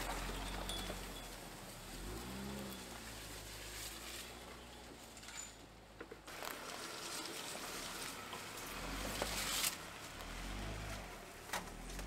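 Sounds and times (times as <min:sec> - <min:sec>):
loud rustle: 0:00.0 - 0:05.3
car engine low hum: 0:00.0 - 0:12.0
tyres rustling on leaves and twigs: 0:00.0 - 0:12.0.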